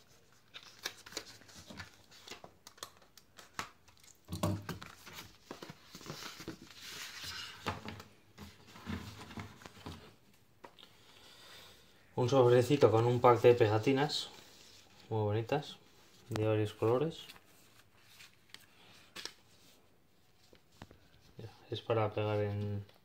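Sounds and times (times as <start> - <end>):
paper and cardboard rustling: 0.0 - 10.2.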